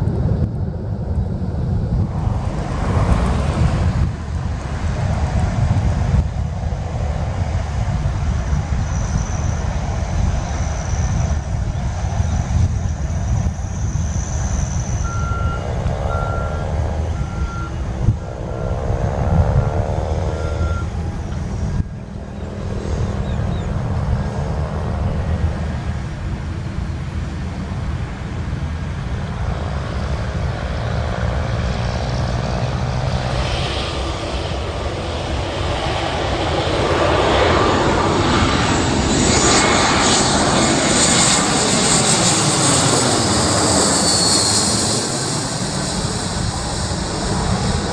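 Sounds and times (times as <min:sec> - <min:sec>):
airliner engines roaring: 0:00.0 - 0:47.9
sliding whine tones: 0:14.9 - 0:21.9
vehicle reversing alarm beeps: 0:15.0 - 0:21.8.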